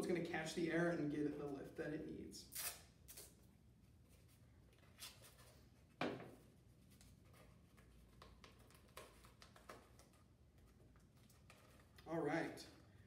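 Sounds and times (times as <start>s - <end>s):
paper and tape rustling: 4.0s - 6.0s, 6.7s - 12.1s.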